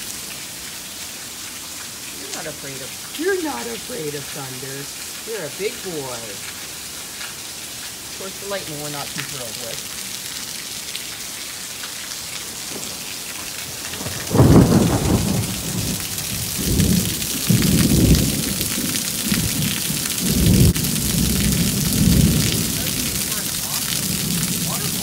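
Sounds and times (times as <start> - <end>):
torrential rain on paving: 0.0 - 25.0
thunderclap rolling: 12.6 - 25.0.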